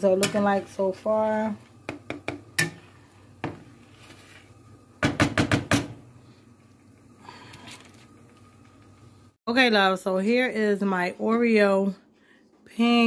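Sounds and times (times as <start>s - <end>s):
spatula knocking frying pan: 1.8s - 2.8s, 5.0s - 6.0s.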